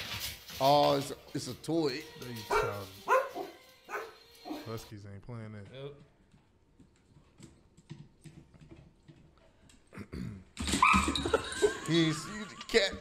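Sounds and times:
dog claws clicking on wooden floor: 0:06.3 - 0:09.8.

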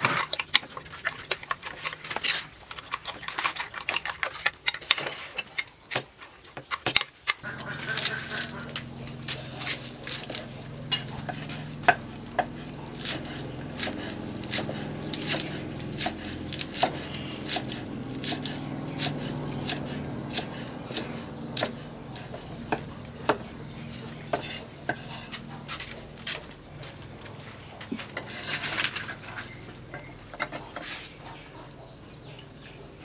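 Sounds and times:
cleaver chopping on wooden block: 0:07.6 - 0:23.5.

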